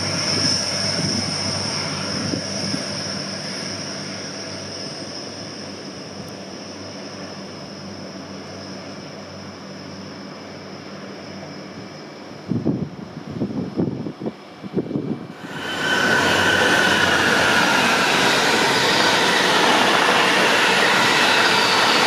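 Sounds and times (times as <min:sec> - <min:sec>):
diesel train engine whine: 0:00.0 - 0:22.0
low buffeting: 0:15.1 - 0:22.0.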